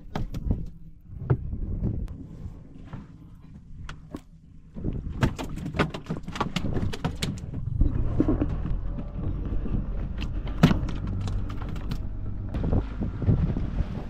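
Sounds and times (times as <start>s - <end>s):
steady low hum: 7.4s - 14.0s.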